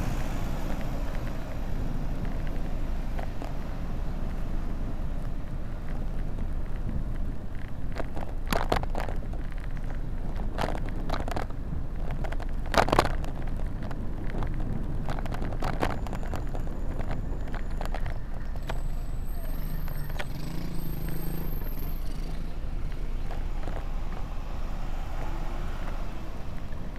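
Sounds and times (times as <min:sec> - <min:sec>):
wind and road noise: 0:00.0 - 0:26.9
sharp clicks and rattles: 0:05.2 - 0:19.2.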